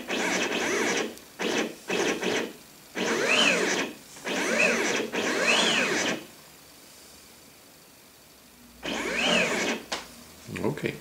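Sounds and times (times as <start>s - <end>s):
stepper motor whine: 0.0s - 6.3s, 8.8s - 9.9s.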